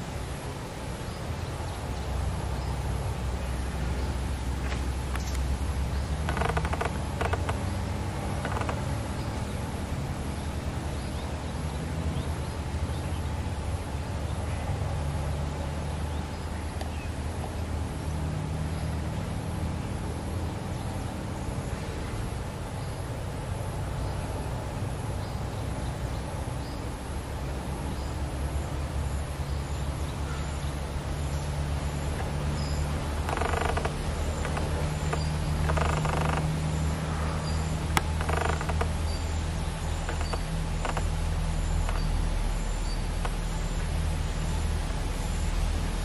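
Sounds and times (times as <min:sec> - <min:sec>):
birds calling: 0:01.0 - 0:13.3, 0:29.4 - 0:45.4
faint high ticking: 0:05.0 - 0:09.5, 0:32.1 - 0:43.9.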